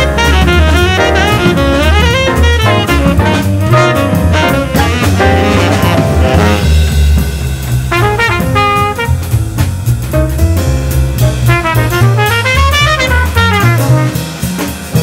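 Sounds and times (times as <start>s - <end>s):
jazz music with brass: 0.0s - 15.0s.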